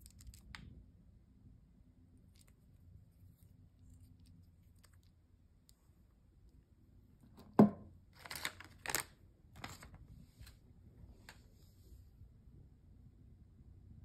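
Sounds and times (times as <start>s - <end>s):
foil bag crinkling: 8.2s - 10.0s.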